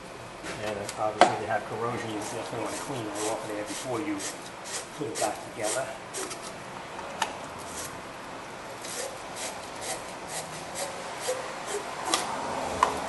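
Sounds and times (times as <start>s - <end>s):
wire brush scraping metal: 2.1s - 6.6s, 7.6s - 8.0s, 8.8s - 12.2s.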